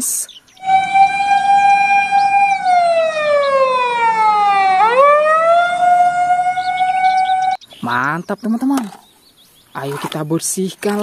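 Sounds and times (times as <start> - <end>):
fire engine wail siren: 0.6 - 7.6.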